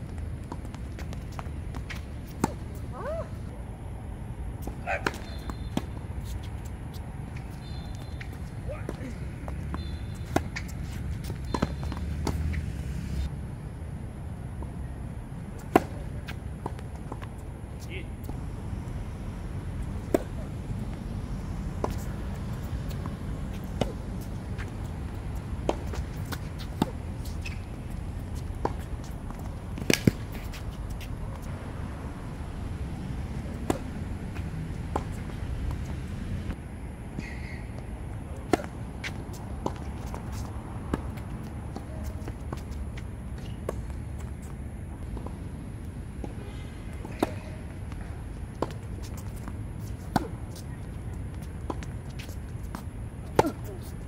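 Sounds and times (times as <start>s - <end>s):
tennis ball bouncing on court: 0.4s - 2.8s, 4.6s - 13.2s, 15.6s - 17.4s, 19.8s - 31.5s, 33.4s - 36.1s, 38.4s - 45.5s, 47.0s - 54.0s
racket hitting tennis ball: 0.4s - 3.1s, 4.6s - 6.7s, 7.3s - 13.3s, 15.6s - 17.3s, 19.8s - 21.0s, 21.7s - 31.5s, 33.3s - 36.5s, 38.4s - 45.5s, 46.2s - 54.0s
tennis ball pops off racket: 29.8s - 30.5s.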